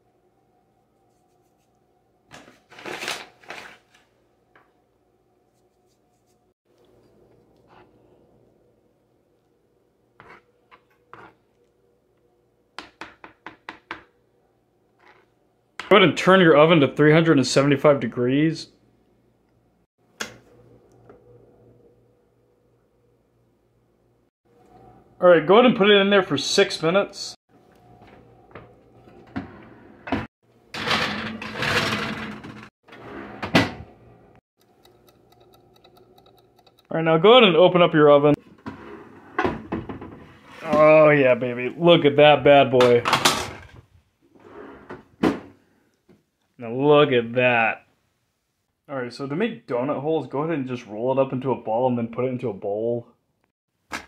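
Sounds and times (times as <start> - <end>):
pan scraping into oven: 29.0 - 33.8, 38.4 - 41.0.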